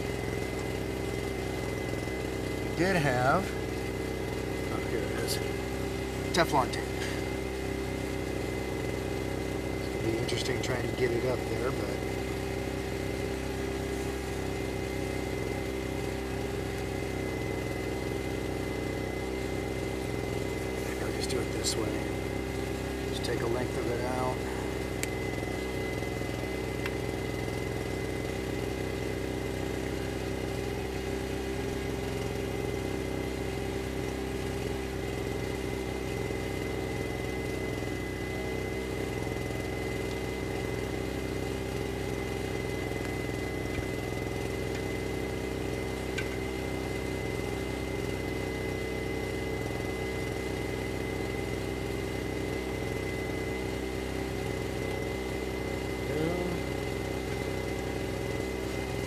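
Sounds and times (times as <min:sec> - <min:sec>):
engine idling: 0:00.0 - 0:59.0
thin steady whine: 0:00.0 - 0:59.0.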